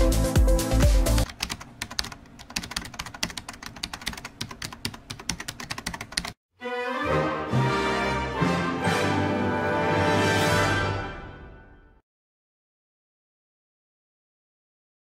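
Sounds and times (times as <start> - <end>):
electronic dance music: 0.0 - 1.3
computer keyboard typing: 1.2 - 6.4.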